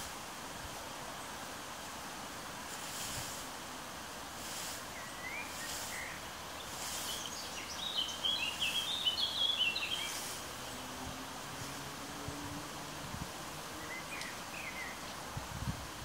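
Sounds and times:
steady outdoor hiss: 0.0s - 16.0s
hand rake swishing through hay: 2.5s - 8.8s, 9.9s - 10.6s
songbird chirping: 4.8s - 11.1s, 13.7s - 15.3s.

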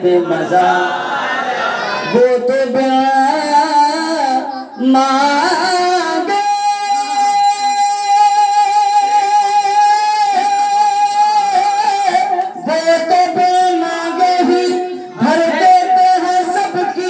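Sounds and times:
man singing into a microphone: 2.1s - 17.0s.

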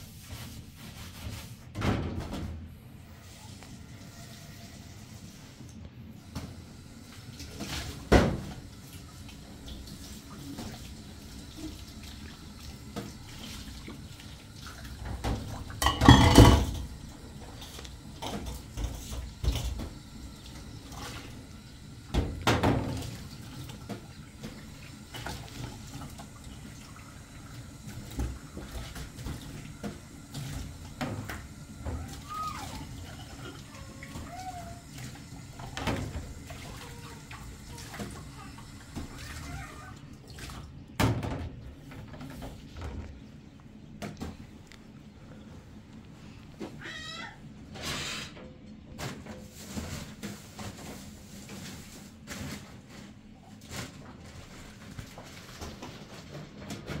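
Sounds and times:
plates and glasses clinking: 15.8s - 16.9s.

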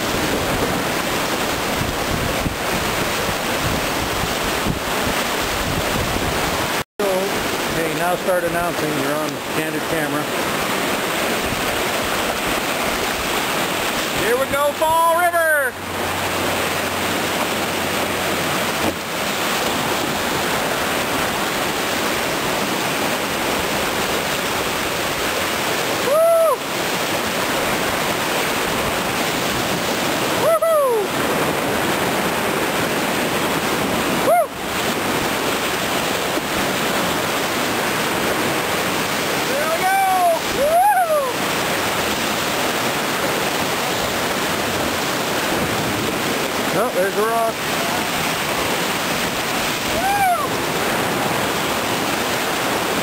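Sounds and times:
whitewater rapids rushing: 0.0s - 53.0s
person whooping: 26.0s - 26.6s, 30.4s - 31.1s, 34.2s - 34.6s, 39.5s - 41.4s, 49.9s - 50.5s.

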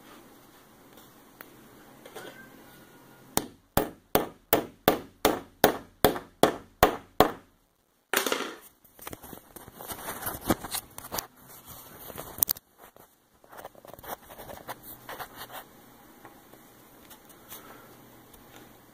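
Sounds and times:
rustling and scraping: 8.6s - 15.8s.

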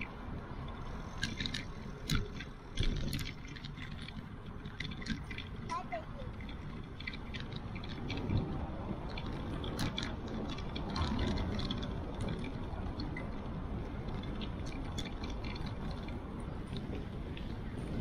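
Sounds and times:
bicycle tyres on asphalt: 0.0s - 18.0s
light clicks and rattles: 0.0s - 18.0s
wind rumble: 0.0s - 18.0s.

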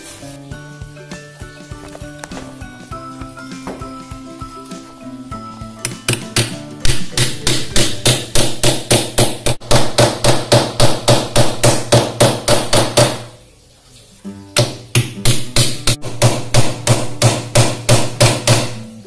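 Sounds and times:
hammer driving nails: 5.8s - 13.3s.

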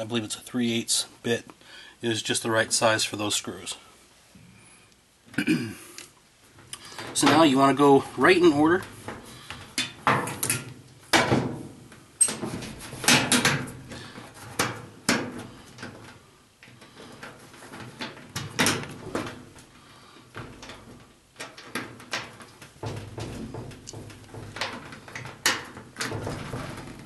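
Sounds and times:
wires knocking on sheet metal: 20.4s - 27.0s.

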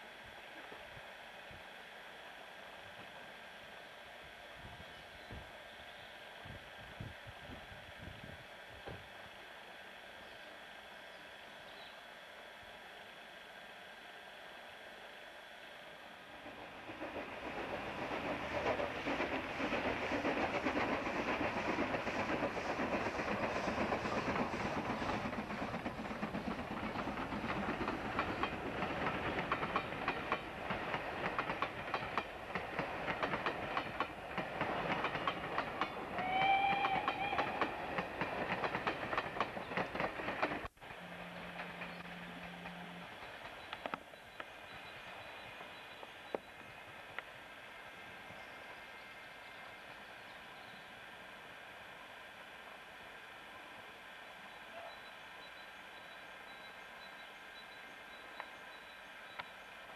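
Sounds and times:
steam locomotive working: 0.0s - 59.9s
wheels clicking over rail joints: 16.8s - 44.8s
steam whistle blast: 36.1s - 37.8s
low hum: 40.6s - 54.8s.

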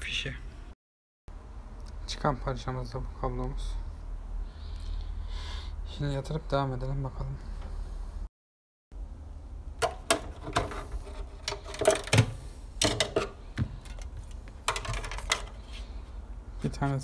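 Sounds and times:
plastic and metal parts clattering: 9.8s - 15.7s.

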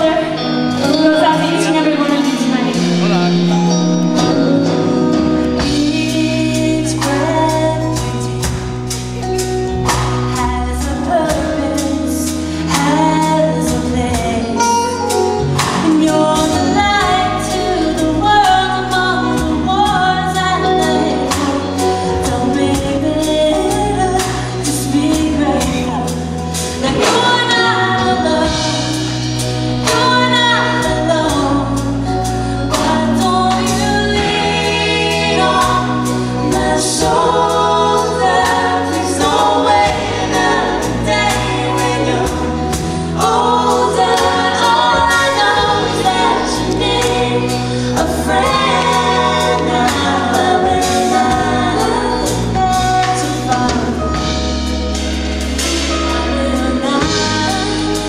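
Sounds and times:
backing vocals: 0.0s - 8.3s, 32.7s - 54.5s
acoustic guitar: 0.0s - 58.0s
drums: 0.0s - 58.0s
electric guitar: 0.0s - 58.0s
woman singing lead: 0.0s - 58.0s.

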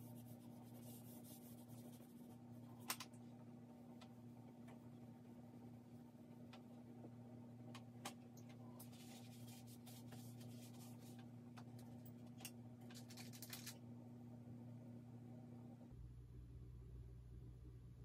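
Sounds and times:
charcoal scratching on paper: 0.0s - 2.4s
steady low hum: 0.0s - 18.0s.

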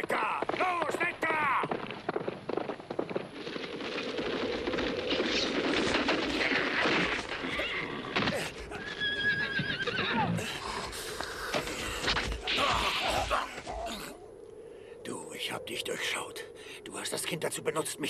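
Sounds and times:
horse hooves pounding: 0.0s - 12.5s
horse neighing: 6.3s - 10.6s.

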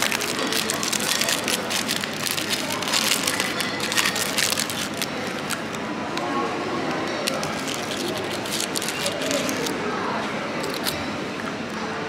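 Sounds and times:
plastic packaging crinkling: 0.0s - 5.8s, 7.1s - 9.8s, 10.6s - 11.0s.

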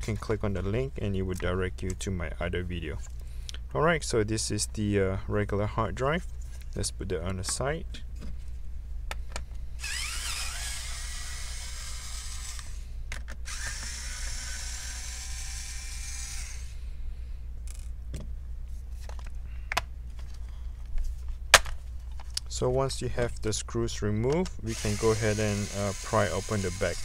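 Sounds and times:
electric screwdriver whine: 9.8s - 12.8s, 13.5s - 16.7s, 24.7s - 27.0s.

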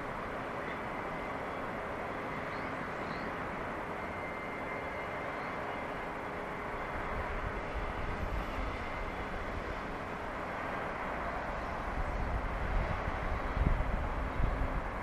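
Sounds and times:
wind noise on microphone: 11.7s - 15.0s.

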